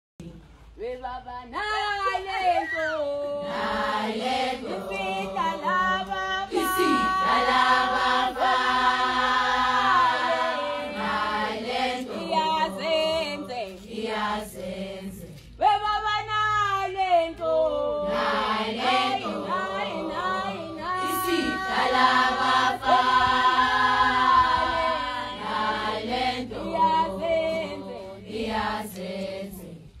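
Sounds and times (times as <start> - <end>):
women singing a cappella: 0.2 - 30.0
solo female voice singing: 0.8 - 8.5, 15.6 - 25.3.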